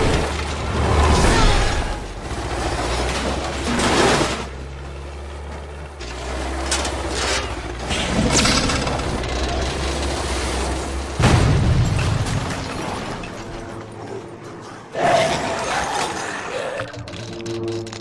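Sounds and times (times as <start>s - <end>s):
propeller plane engine running: 4.4s - 11.2s, 16.8s - 18.0s.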